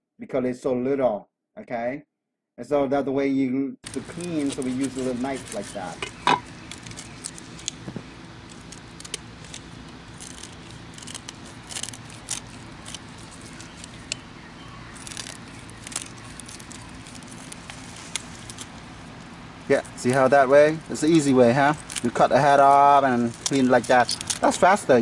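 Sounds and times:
steady low hum: 3.8s - 25.0s
knife scraping fish scales: 3.9s - 18.8s.

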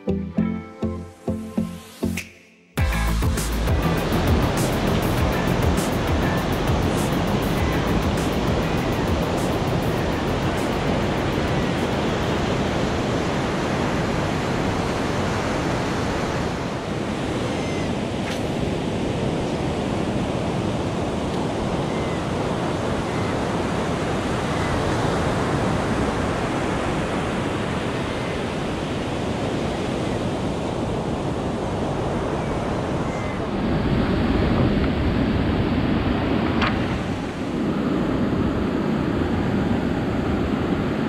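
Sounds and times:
ocean surf breaking: 3.5s - 41.0s.

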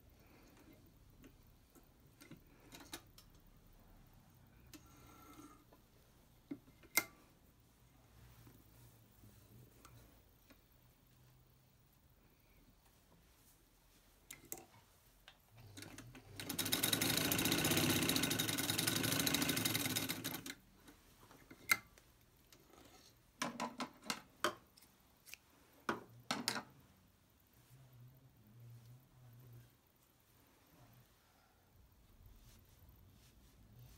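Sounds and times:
sewing machine stitching: 15.6s - 20.6s.

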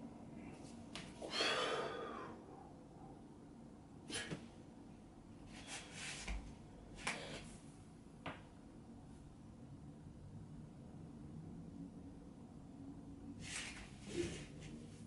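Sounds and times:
man breathing sharply: 1.2s - 2.4s.

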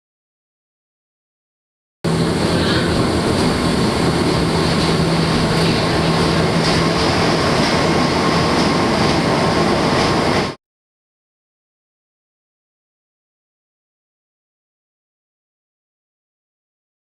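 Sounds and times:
railcar rolling in tunnel: 2.1s - 10.6s.

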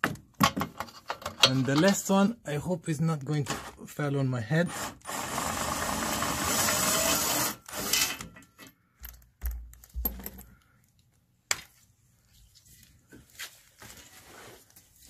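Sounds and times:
metal knocks and thumps: 0.0s - 2.0s, 8.2s - 10.5s
cordless power tool spinning: 5.0s - 8.0s.

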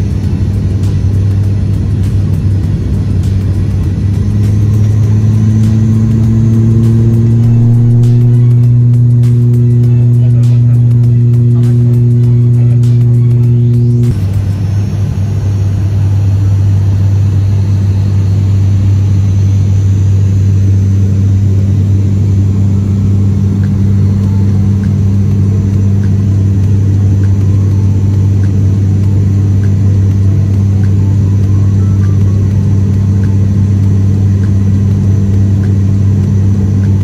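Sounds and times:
turboprop engine drone in cabin: 0.0s - 37.0s.

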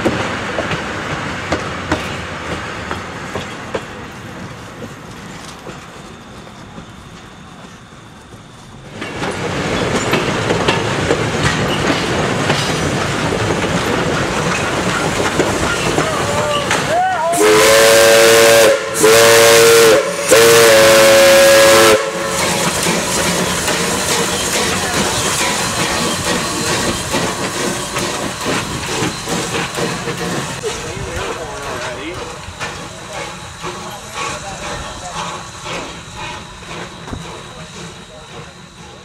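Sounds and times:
steam hiss: 0.0s - 39.0s
wheel clatter on rails: 8.3s - 17.1s
steam whistle chord blasts: 17.4s - 22.6s.

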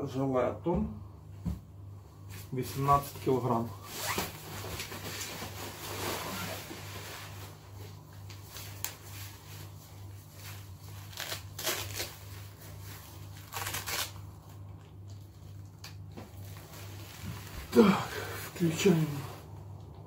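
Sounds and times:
steady low hum: 0.0s - 20.0s
fabric rustling and crinkling: 2.3s - 19.5s.

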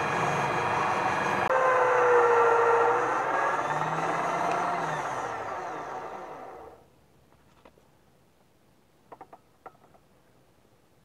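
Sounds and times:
electric drill motor winding down: 0.0s - 6.8s.

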